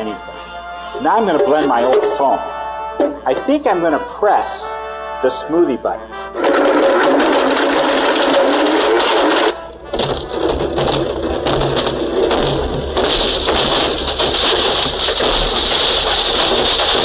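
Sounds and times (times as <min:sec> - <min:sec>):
blender grinding phone over loudspeakers: 0:06.3 - 0:09.8, 0:13.1 - 0:17.0.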